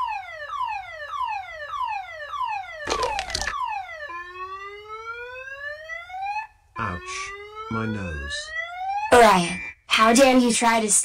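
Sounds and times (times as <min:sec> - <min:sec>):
car alarm whooping: 0:03.6 - 0:10.1.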